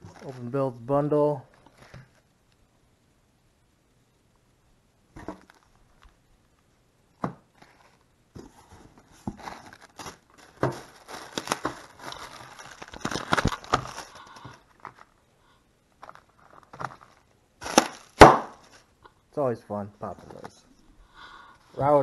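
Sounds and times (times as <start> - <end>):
plastic bags crinkling and rustling: 0.0 - 0.7, 1.4 - 2.3, 5.2 - 6.2, 7.5 - 15.2, 15.9 - 19.0
packages knocking on wooden table: 5.2 - 5.6, 7.2 - 7.5, 10.5 - 11.9, 17.7 - 18.6.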